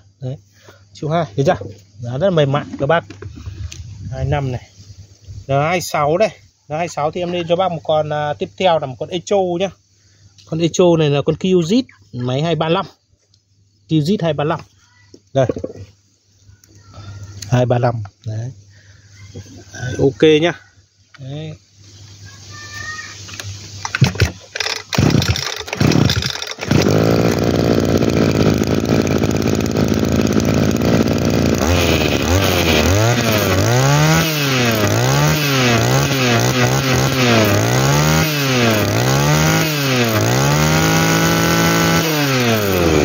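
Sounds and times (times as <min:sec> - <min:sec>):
brush-cutter engine revving: 0:23.4 - 0:43.0.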